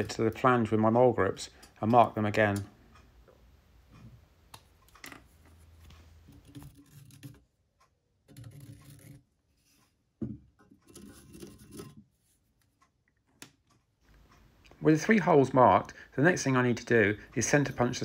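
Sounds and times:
marker pen scratching on metal: 6.3 - 7.4, 8.3 - 9.8.

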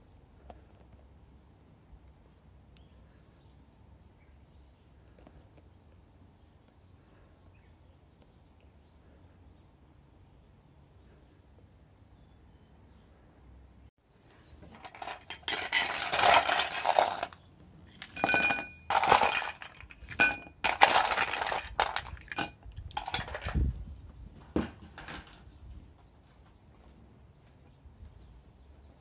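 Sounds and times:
ice cubes clattering: 14.7 - 23.6
ice clinking against glass: 18.0 - 23.6.

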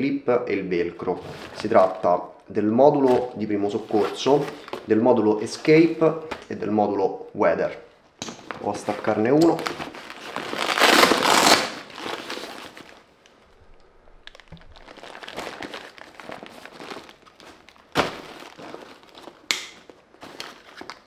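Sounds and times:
velcro ripping apart: 9.4 - 13.0
fabric rustling: 14.3 - 20.9.

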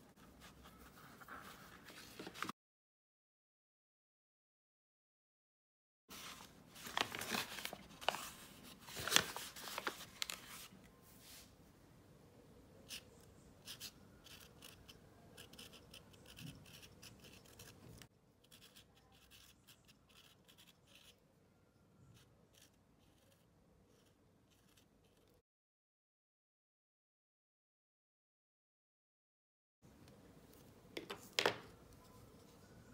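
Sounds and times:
paper crackling and rustling: 6.1 - 10.8
marker scratching on canvas: 12.9 - 21.2, 22.2 - 25.2.

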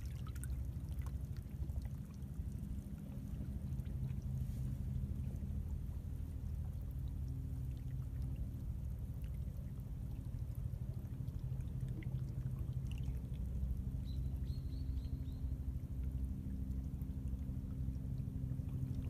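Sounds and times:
seawater running between rocks: 0.0 - 14.5.

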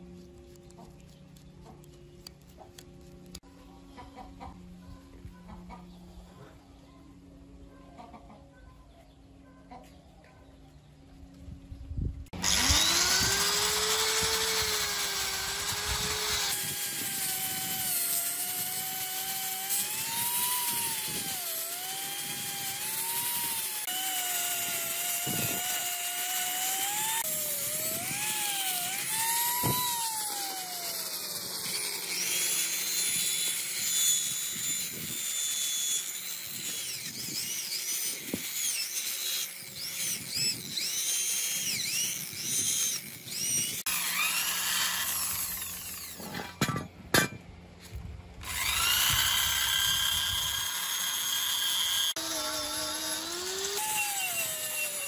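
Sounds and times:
drill spinning rotary brush: 12.3 - 46.6, 48.4 - 55.0
angle grinder whining: 12.3 - 55.0.

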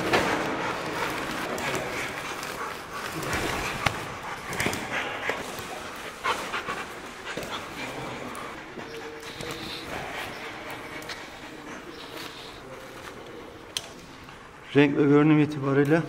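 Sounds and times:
dog panting: 0.0 - 15.4.

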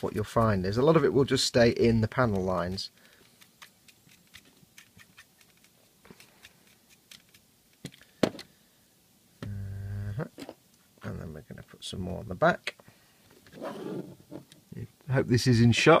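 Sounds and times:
brush tapping plastic parts: 0.0 - 1.0, 1.8 - 8.5
man humming: 9.4 - 10.2.

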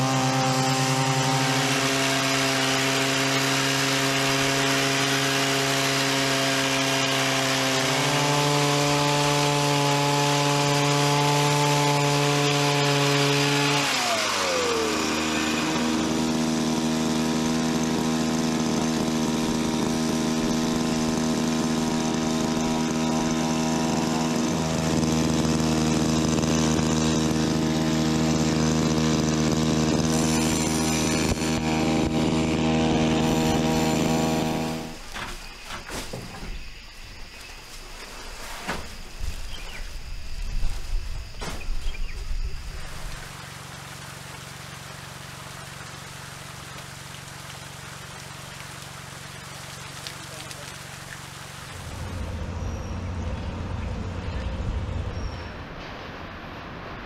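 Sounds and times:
small two-stroke engine running: 0.0 - 35.1, 43.3 - 55.5.

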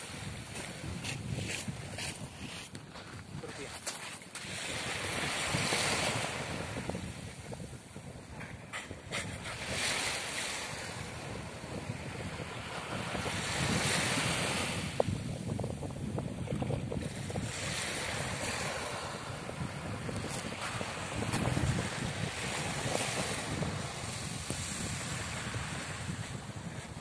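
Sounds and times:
wind rumbling on microphone: 0.0 - 27.0
waves washing onto pebbles: 3.4 - 7.5, 8.7 - 15.5, 17.0 - 27.0.

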